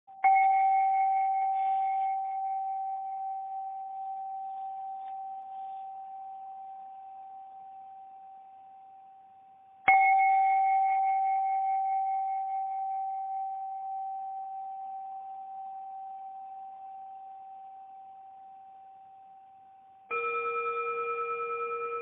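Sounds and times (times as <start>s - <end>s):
struck bell ringing: 20.1s - 22.0s.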